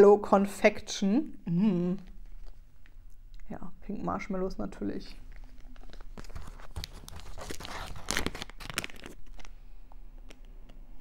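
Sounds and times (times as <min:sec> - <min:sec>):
packaging crinkling: 0:05.2 - 0:10.5.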